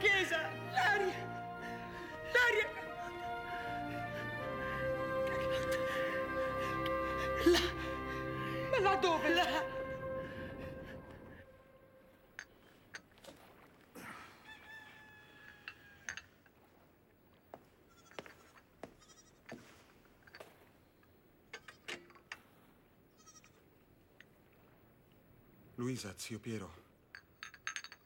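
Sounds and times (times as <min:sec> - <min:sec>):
rooster crowing: 0:14.0 - 0:16.3
teacups clinking on saucers: 0:27.0 - 0:28.0.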